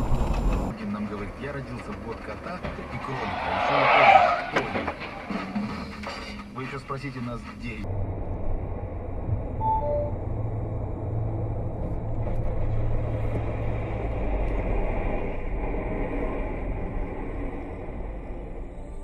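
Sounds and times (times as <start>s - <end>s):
car road and engine rumble: 0.0s - 19.0s
two-note falling electronic beep: 9.6s - 10.2s.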